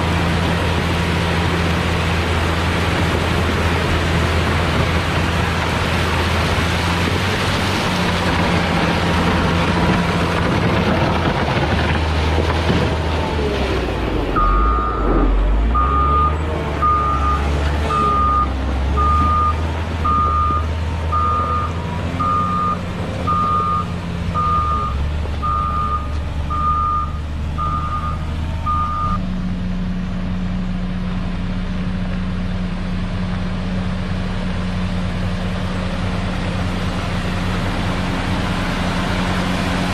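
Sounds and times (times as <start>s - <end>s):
diesel engine running: 0.0s - 39.9s
reversing alarm beeping: 14.4s - 29.2s.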